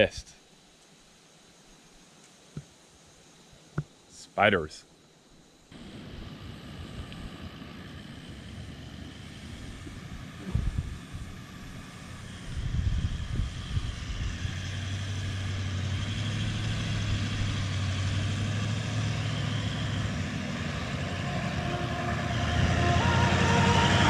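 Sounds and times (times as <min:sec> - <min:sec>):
vehicle engine hum approaching: 0:05.7 - 0:24.0.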